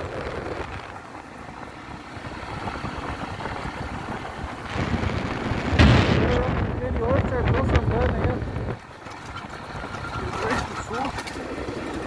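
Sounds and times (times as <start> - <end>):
motorcycle engine rumble: 0.0 - 12.0
wind buffeting microphone: 0.0 - 12.0.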